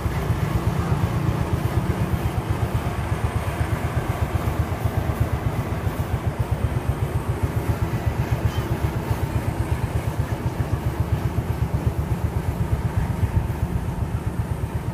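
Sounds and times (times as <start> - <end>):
harvester engine throbbing: 0.0 - 14.9.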